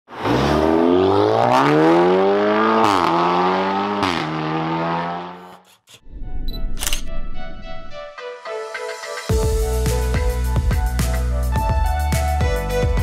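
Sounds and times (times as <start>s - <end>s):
car engine accelerating hard: 0.2s - 5.5s.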